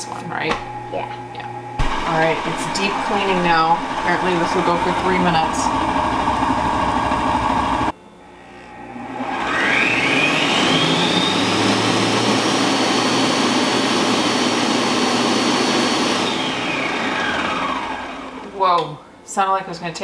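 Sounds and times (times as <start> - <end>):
cooking robot motor whining: 1.3 - 18.4
water churning in a bowl: 1.8 - 7.9.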